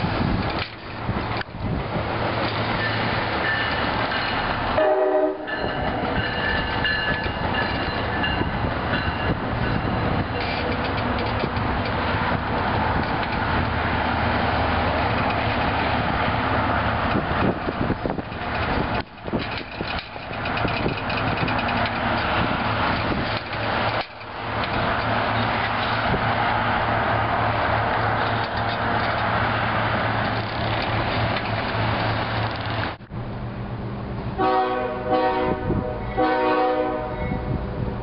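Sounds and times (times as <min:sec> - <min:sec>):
wheels clattering over rail joints: 0:00.0 - 0:04.8, 0:05.4 - 0:33.0
locomotive rumble: 0:00.0 - 0:38.0
train horn: 0:04.8 - 0:06.1, 0:34.4 - 0:37.6.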